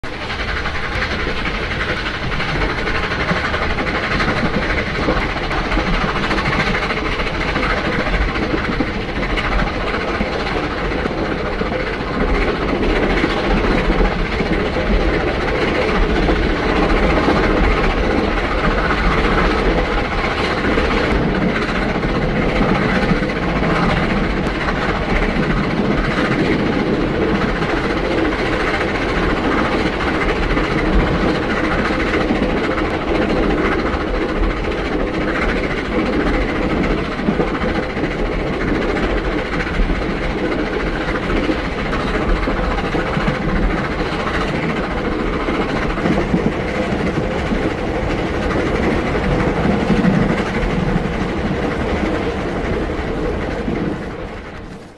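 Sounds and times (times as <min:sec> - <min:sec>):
steam locomotive chuffing: 0:00.0 - 0:54.9.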